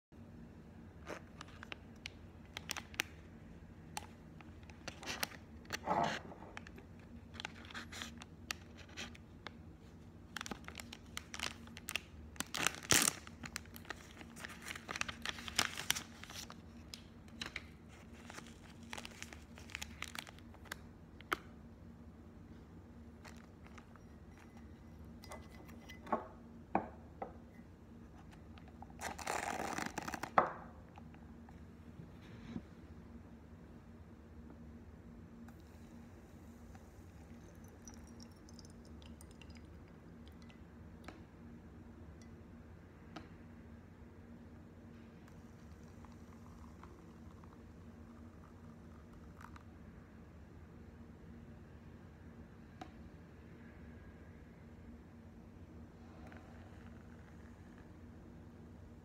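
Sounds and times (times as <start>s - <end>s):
plastic packet crinkling and tearing: 2.5s - 3.2s, 10.3s - 16.6s, 17.4s - 20.8s, 29.0s - 30.4s.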